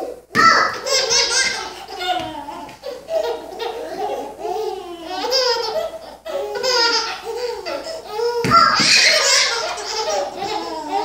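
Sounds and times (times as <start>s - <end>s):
babies laughing: 0.0s - 11.0s.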